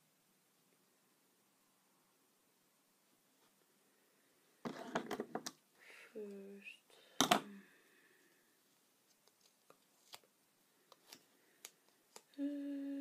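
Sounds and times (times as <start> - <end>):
person humming: 12.3 - 13.0.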